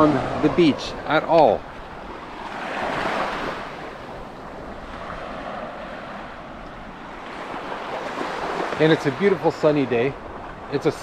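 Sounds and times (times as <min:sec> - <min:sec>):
surf washing up beach: 0:00.0 - 0:11.0.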